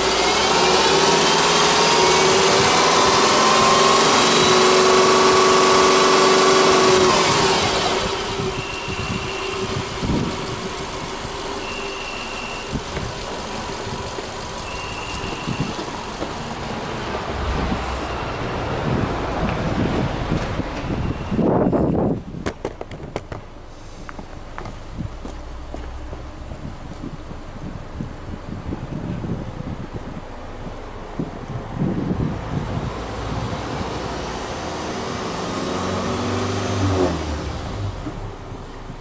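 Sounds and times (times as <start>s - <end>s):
car engine revving and idling: 0.0s - 39.0s
short high beeps: 11.6s - 12.8s.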